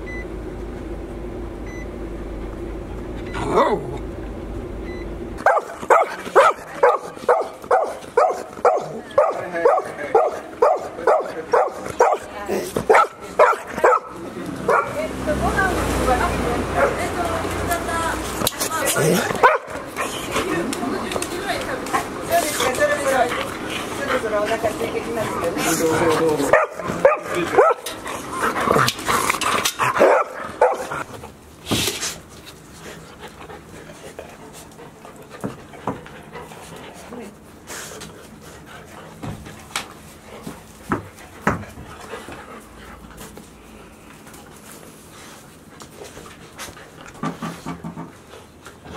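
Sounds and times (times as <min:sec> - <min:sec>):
dog barking: 0:05.4 - 0:12.3, 0:12.9 - 0:15.0, 0:16.8 - 0:17.0, 0:19.4 - 0:19.9, 0:26.5 - 0:27.9, 0:30.0 - 0:31.0.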